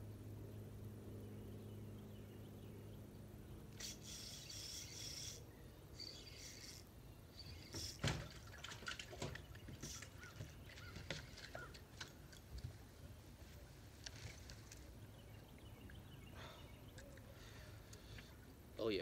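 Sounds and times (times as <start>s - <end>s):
small clicks of a reel: 3.7s - 5.4s, 6.0s - 8.1s
fishing rod handling rustles: 7.5s - 15.0s.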